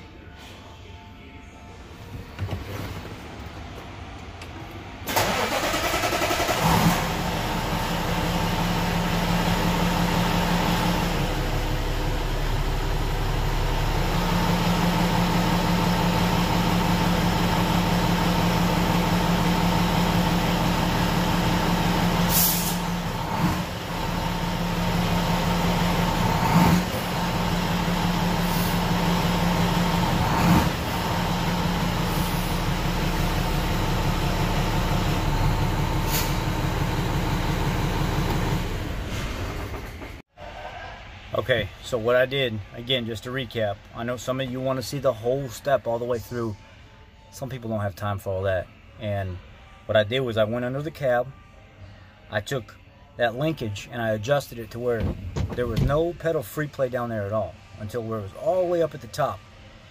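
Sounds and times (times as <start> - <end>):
diesel truck engine idling: 5.1 - 40.0.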